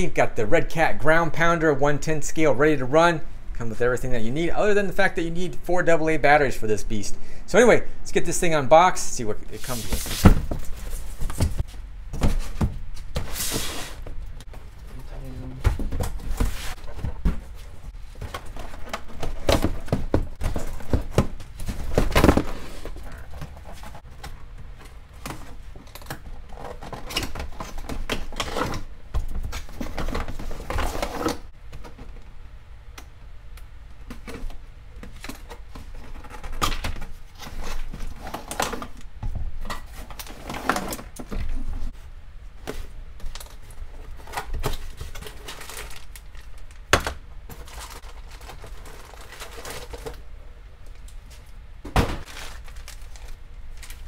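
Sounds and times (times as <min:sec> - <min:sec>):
cardboard boxes opened and slid: 0:09.6 - 0:14.0, 0:15.7 - 0:24.0.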